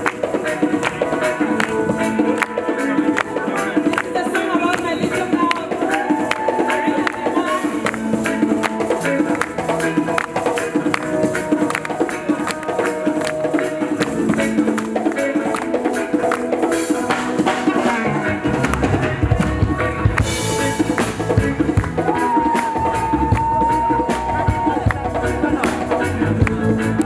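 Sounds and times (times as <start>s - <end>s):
drum kit: 0.0s - 27.0s
guitar: 0.0s - 27.0s.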